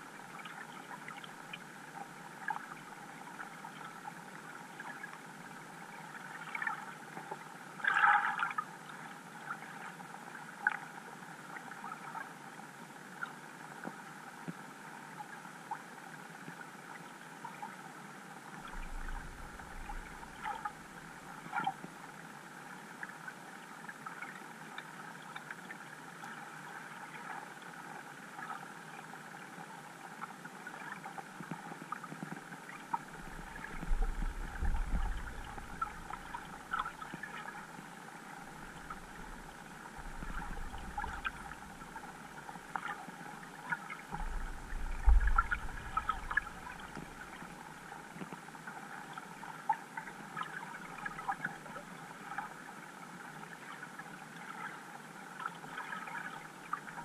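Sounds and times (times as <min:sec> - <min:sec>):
muffled underwater hiss: 0:00.0 - 0:57.0
low rumbling thumps: 0:33.2 - 0:36.3, 0:44.2 - 0:47.2.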